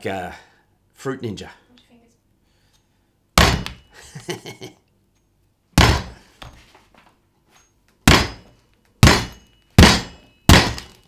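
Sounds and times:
blade striking hard shell: 3.4 - 3.9, 8.1 - 11.0.

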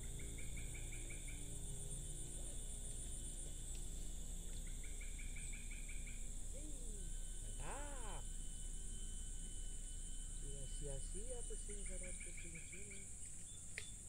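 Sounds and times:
insects droning: 0.0 - 14.0
rapid chirps: 4.6 - 8.2, 10.2 - 14.0.

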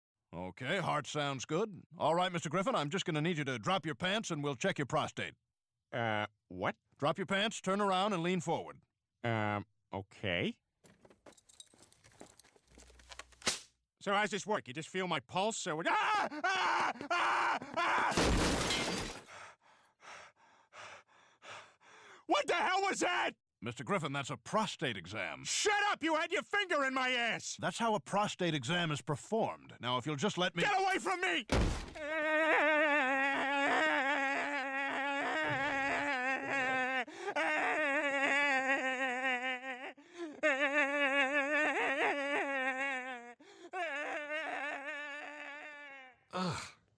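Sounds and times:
cartoon man wailing: 15.8 - 18.2, 32.0 - 46.6
glass jars crashing and shattering: 18.1 - 19.3.

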